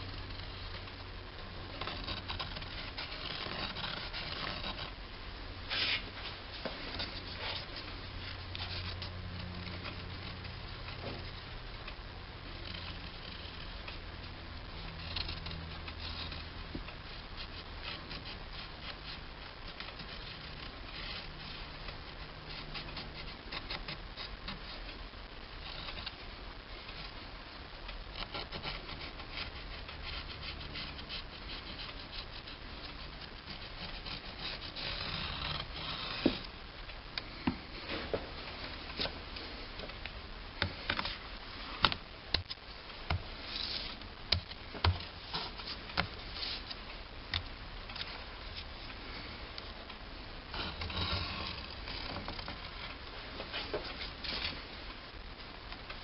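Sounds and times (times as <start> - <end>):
paper scratching against metal: 1.7 - 5.0, 5.7 - 6.1, 12.5 - 25.0, 28.1 - 36.5, 43.4 - 44.0.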